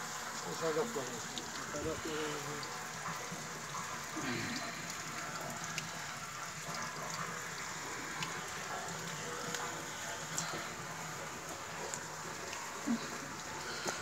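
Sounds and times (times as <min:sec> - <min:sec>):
water rushing from a tank: 0:00.0 - 0:14.0.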